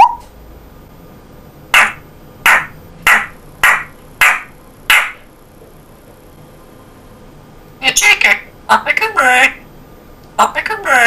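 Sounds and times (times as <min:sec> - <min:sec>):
parrot harsh calls: 0:01.7 - 0:05.2.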